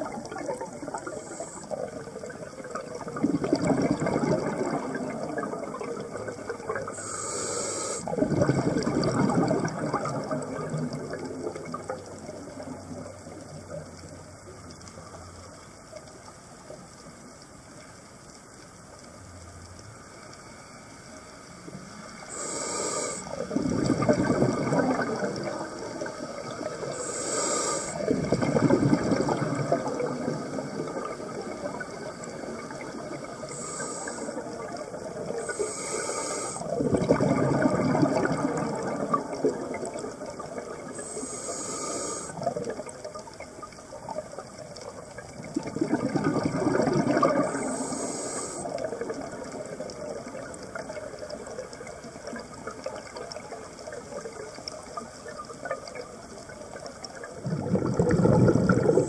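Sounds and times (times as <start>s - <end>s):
bubbling exhaled air: 0.0s - 13.9s, 22.3s - 59.0s
regulator hissing inhalations: 6.9s - 8.2s, 22.2s - 23.6s, 25.7s - 28.1s, 33.2s - 34.7s, 35.3s - 36.8s, 40.9s - 42.4s, 47.4s - 49.1s.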